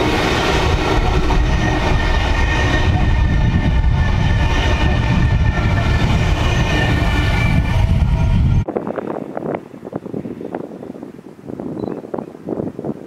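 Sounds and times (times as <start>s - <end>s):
high whine: 0.0s - 9.0s
train wheels rumbling on rail: 0.0s - 10.4s.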